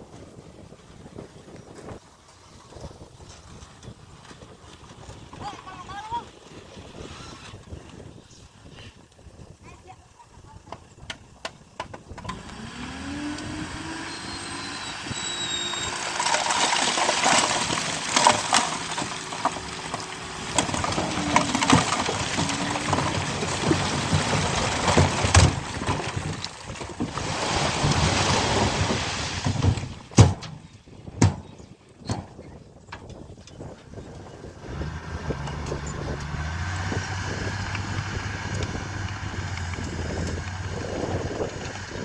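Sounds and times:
diesel engine revving under load: 0:12.2 - 0:26.2, 0:34.1 - 0:42.0.

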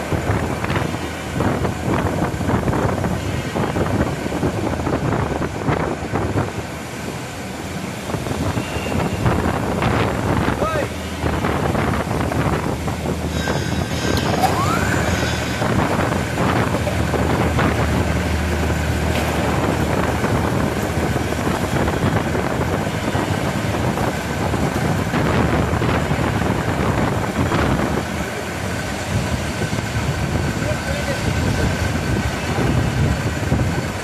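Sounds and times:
rising whine: 0:08.1 - 0:24.6
drilling machine din: 0:12.7 - 0:20.6.

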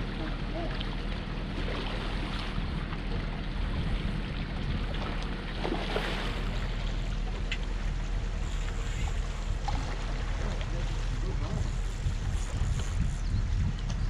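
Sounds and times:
river water lapping against rocks: 0:00.0 - 0:14.0
steady low hum: 0:00.0 - 0:14.0
wind on microphone: 0:02.3 - 0:05.2, 0:07.8 - 0:14.0.

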